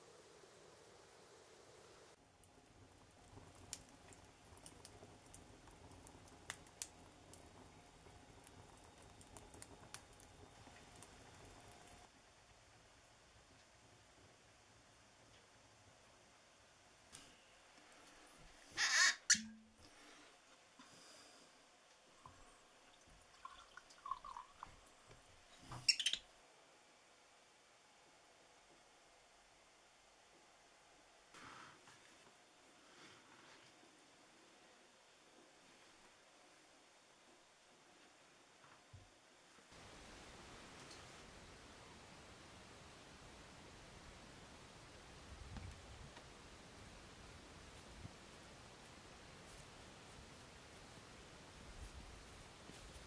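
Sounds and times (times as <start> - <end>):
wood fire crackling: 0.0 - 14.3, 16.9 - 26.2, 39.6 - 53.0.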